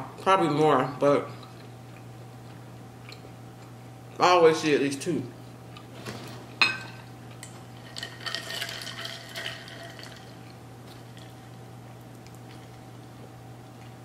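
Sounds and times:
glass clinking: 0:06.6 - 0:07.1
ice cubes rattling in glass: 0:07.8 - 0:10.3.

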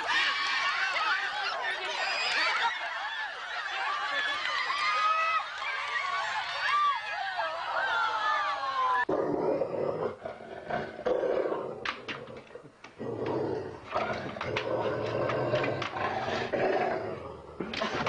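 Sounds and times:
large dog growling: 0:09.1 - 0:17.7.

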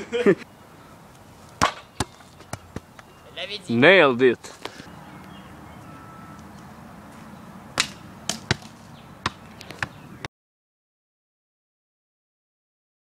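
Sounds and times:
ball bouncing with sharp thuds: 0:01.6 - 0:03.1, 0:07.8 - 0:10.0.

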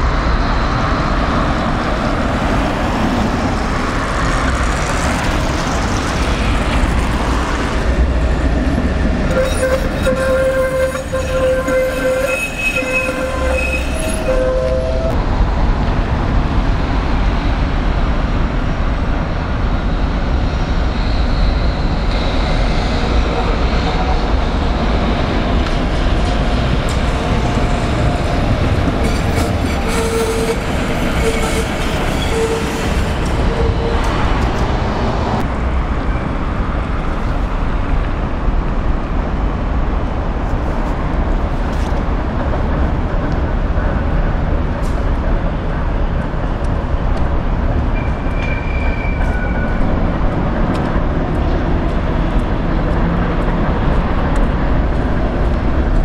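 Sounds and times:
tram wheels and motors rumbling: 0:00.0 - 0:56.0
wheel squeal on curve: 0:09.3 - 0:15.2, 0:29.0 - 0:34.1, 0:48.0 - 0:49.9.

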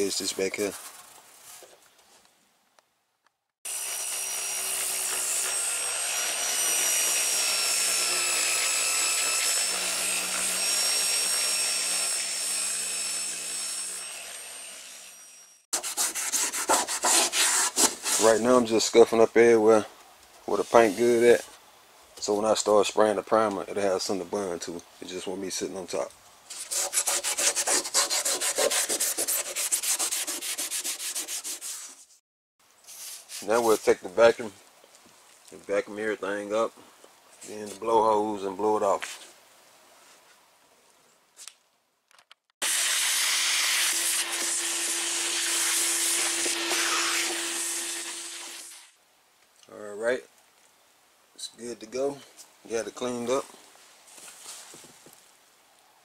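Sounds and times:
sander whining on metal: 0:03.7 - 0:15.6, 0:42.6 - 0:48.9
scuff pad rubbing painted metal: 0:26.5 - 0:32.2.

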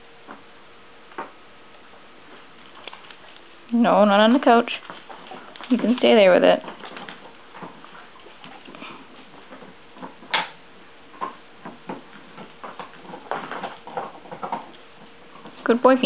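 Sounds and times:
puppy playing with toy: 0:04.1 - 0:10.4.

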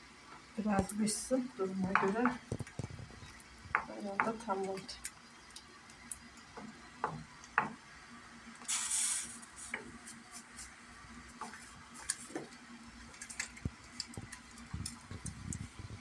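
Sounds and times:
short hissing burst: 0:08.7 - 0:09.8.

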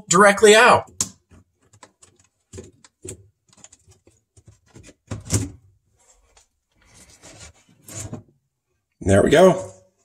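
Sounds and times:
plastic clicks and rattles: 0:01.0 - 0:05.0.

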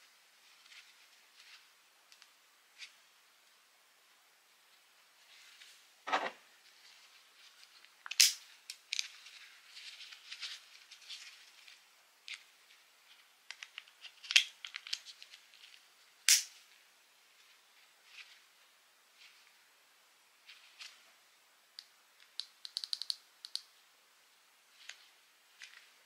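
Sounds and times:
sharp plastic clip clicks: 0:08.1 - 0:08.4, 0:16.3 - 0:16.5, 0:22.3 - 0:23.6.

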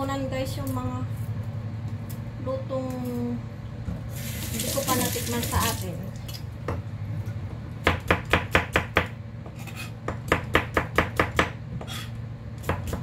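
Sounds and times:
knife chopping on plastic board: 0:07.8 - 0:12.0, 0:12.6 - 0:13.0.

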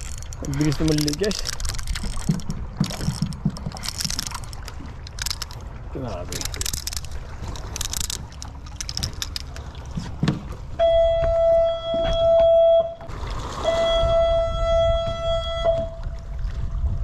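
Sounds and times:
horn blasts: 0:10.8 - 0:16.1.

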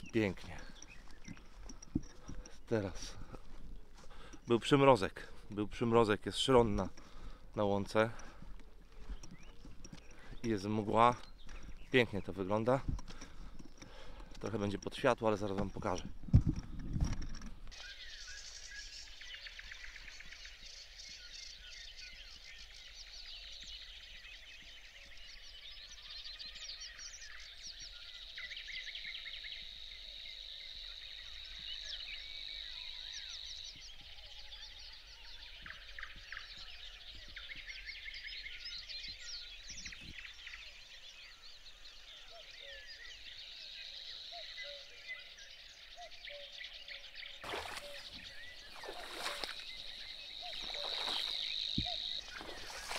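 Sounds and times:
songbirds singing: 0:00.0 - 0:52.9
warbler reeling buzz: 0:47.4 - 0:52.9.

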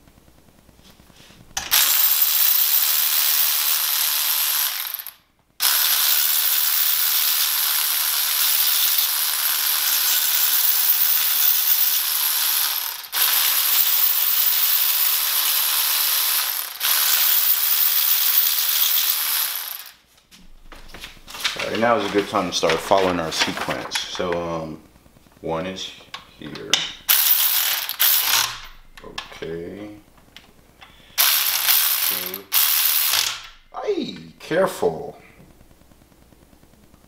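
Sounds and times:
electric ratchet running: 0:01.6 - 0:20.0, 0:27.1 - 0:28.7, 0:31.2 - 0:33.6.

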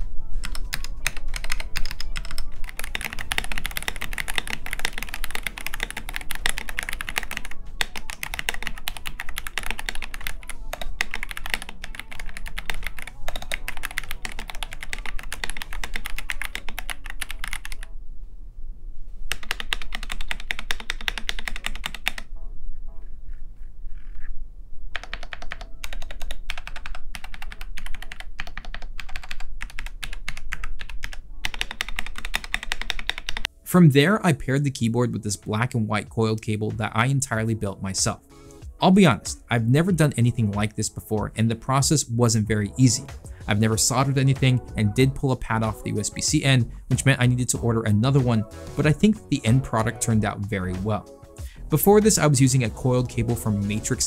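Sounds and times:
mechanical keyboard typing: 0:00.4 - 0:17.9, 0:19.3 - 0:22.2, 0:24.9 - 0:33.5.

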